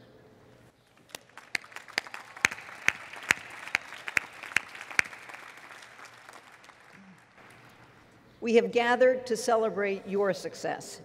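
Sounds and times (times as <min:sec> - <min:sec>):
crowd applauding: 0:00.8 - 0:08.0
person clapping nearby: 0:00.9 - 0:07.8.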